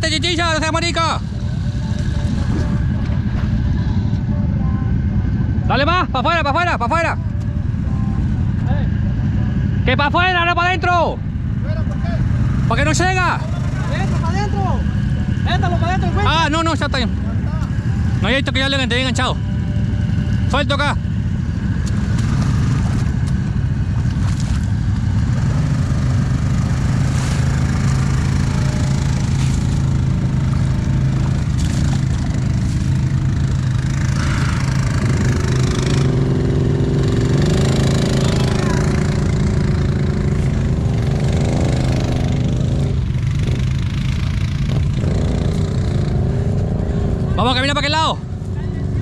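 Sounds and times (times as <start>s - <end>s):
atv engine revving: 11.4s - 49.0s.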